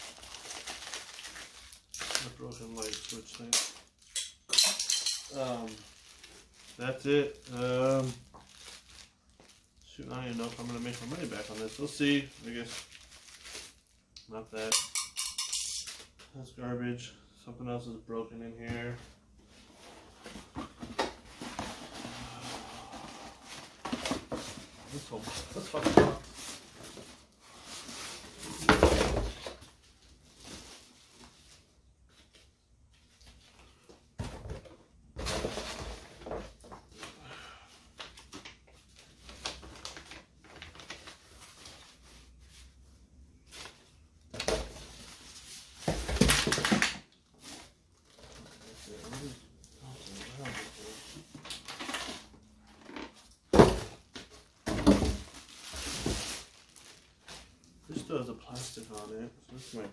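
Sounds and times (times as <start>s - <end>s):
plastic packaging crinkling: 0.0s - 4.0s, 5.3s - 14.0s, 54.4s - 57.8s.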